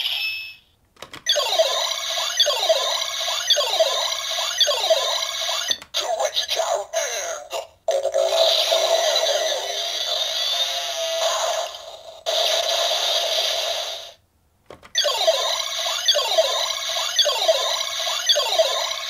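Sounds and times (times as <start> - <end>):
toy electronic sound effects: 1.2 - 7.3, 7.9 - 14.2, 14.9 - 19.0
looping jingle of falling sweeps: 15.0 - 19.0.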